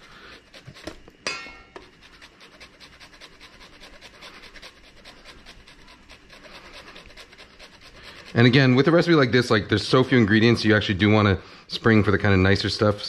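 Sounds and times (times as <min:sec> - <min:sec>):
dog panting: 0:00.0 - 0:01.2, 0:01.8 - 0:09.4
sharp ringing clink: 0:01.3 - 0:01.7.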